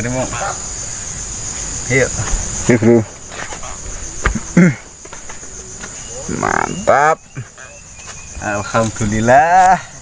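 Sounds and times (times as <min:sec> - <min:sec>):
insects chirring: 0:00.0 - 0:10.0
men exclaiming: 0:06.0 - 0:10.0.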